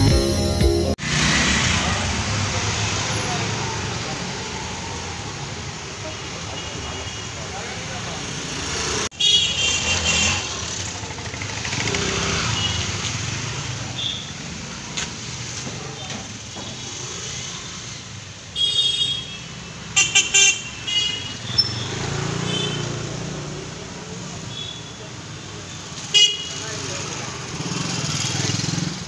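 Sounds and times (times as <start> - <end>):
auto-rickshaw and scooter engines: 1.0 - 29.0
vehicle horns honking: 9.2 - 10.6, 18.6 - 22.9, 26.2 - 26.6.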